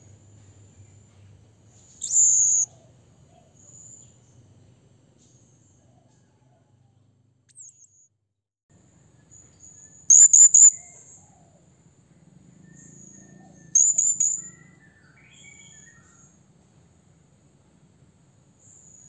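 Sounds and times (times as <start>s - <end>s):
faint thin bird calls: 1.9s - 3.5s
parrot shrill high calls: 2.0s - 2.7s, 10.1s - 10.9s.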